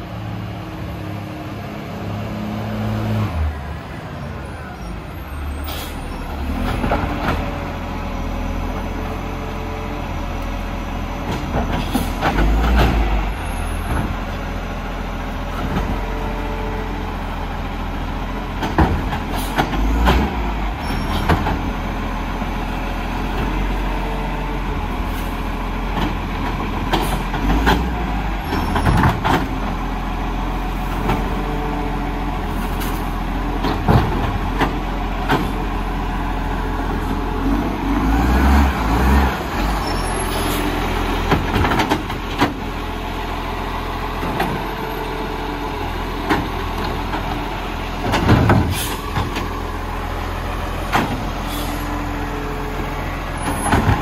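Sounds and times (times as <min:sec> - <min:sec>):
garbage truck engine running: 0:03.5 - 0:54.0
knocks and clanks: 0:33.6 - 0:35.6, 0:41.2 - 0:42.6, 0:48.0 - 0:49.5, 0:53.4 - 0:54.0.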